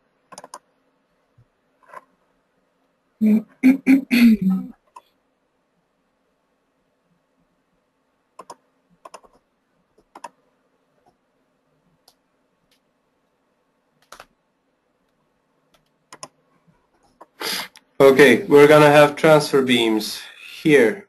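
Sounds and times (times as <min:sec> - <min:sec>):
faint steady hum: 0:00.0 - 0:21.0
sharp computer clicks: 0:00.3 - 0:00.7, 0:08.4 - 0:09.4, 0:10.0 - 0:10.4, 0:14.0 - 0:14.3, 0:15.7 - 0:16.4.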